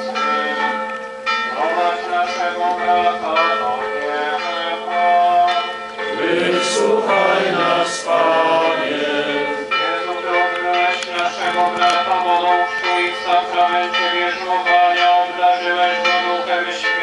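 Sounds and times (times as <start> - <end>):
church bells ringing: 0.0 - 17.0
people singing a hymn: 6.0 - 10.4.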